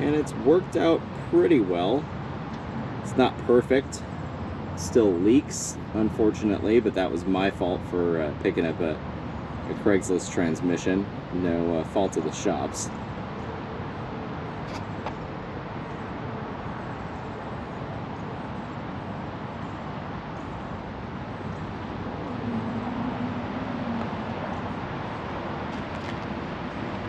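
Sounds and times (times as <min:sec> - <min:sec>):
distant road traffic rumble: 0:00.0 - 0:27.0
low hum: 0:17.2 - 0:27.0.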